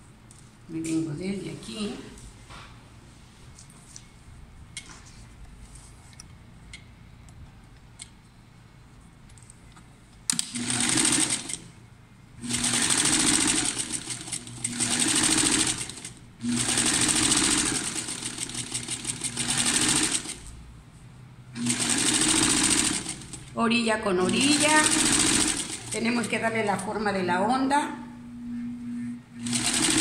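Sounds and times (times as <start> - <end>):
sewing machine stitching: 10.3 - 11.6, 12.4 - 20.5, 21.6 - 23.5, 24.2 - 26.9, 29.4 - 30.0.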